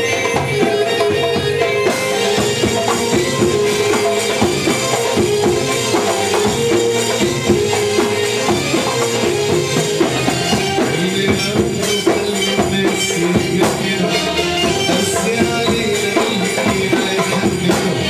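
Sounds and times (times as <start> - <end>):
hand percussion beat: 0.0 - 18.0
sustained melody line: 0.0 - 18.0.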